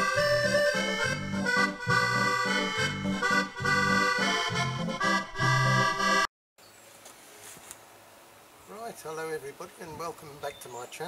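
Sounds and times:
accordion playing a tune: 0.0 - 6.3.

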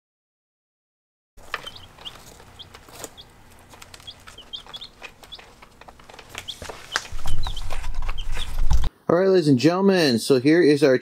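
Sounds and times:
chicks peeping: 1.4 - 8.9.

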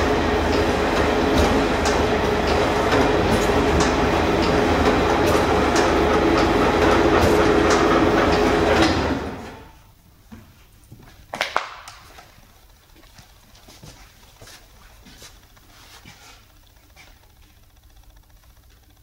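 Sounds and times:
dough machine humming and rattling: 0.0 - 9.8, 12.0 - 19.0.

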